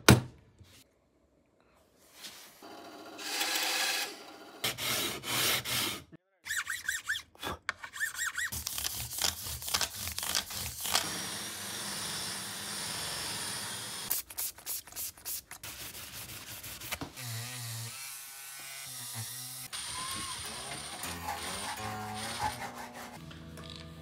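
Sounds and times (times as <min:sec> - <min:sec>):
small electric tool buzzing: 0:09.8 - 0:14.1, 0:17.2 - 0:22.7
sanding strokes on guitar frets: 0:21.1 - 0:23.2.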